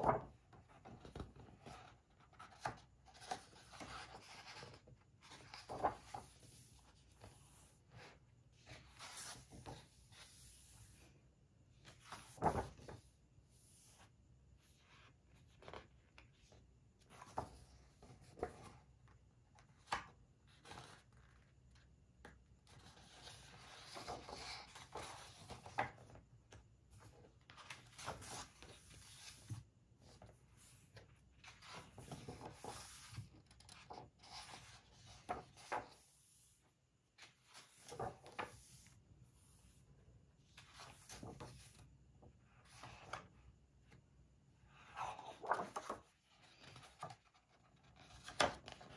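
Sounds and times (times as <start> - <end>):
paper pages turning: 0.0 - 6.5, 11.9 - 13.0, 31.4 - 36.0, 37.2 - 38.6, 44.8 - 48.9.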